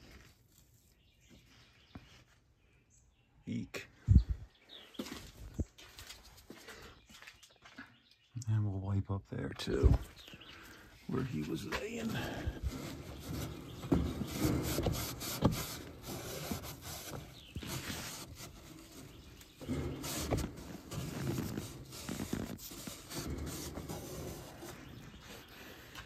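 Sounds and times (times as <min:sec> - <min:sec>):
rag rubbing inside cabinet: 0:11.5 - 0:25.5.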